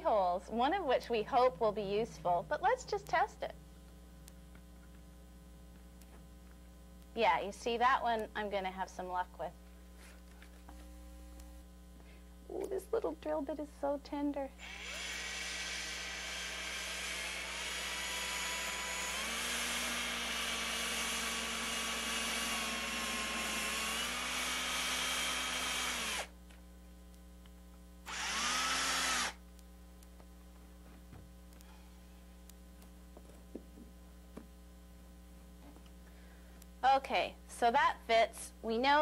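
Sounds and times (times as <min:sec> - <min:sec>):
cordless drill whining: 0:14.6 - 0:26.3, 0:28.1 - 0:29.4.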